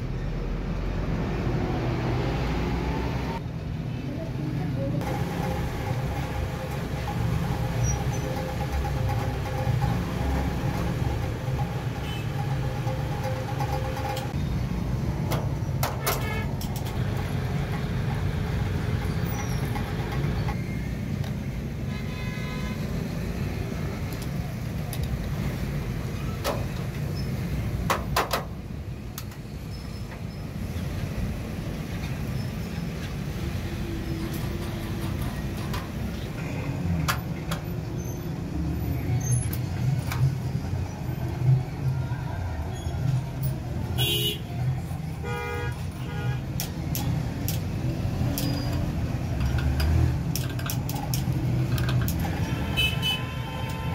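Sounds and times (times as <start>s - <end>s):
clicks and knocks of handled parts: 15.2s - 20.6s, 24.0s - 25.3s, 27.8s - 29.5s, 34.2s - 37.9s, 39.4s - 40.4s, 45.7s - 52.6s.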